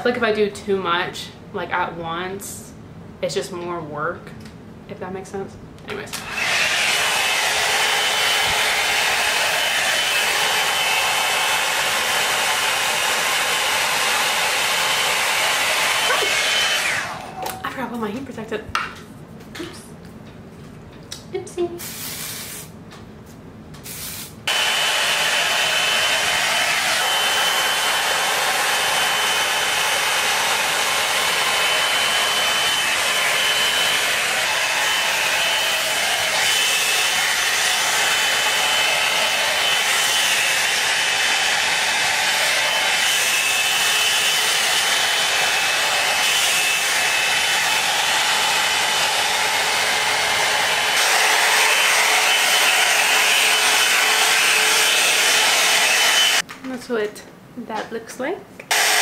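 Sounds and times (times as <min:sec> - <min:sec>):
blow-dryer brush running: 0:06.1 - 0:17.4, 0:24.1 - 0:56.4, 0:58.7 - 0:59.0.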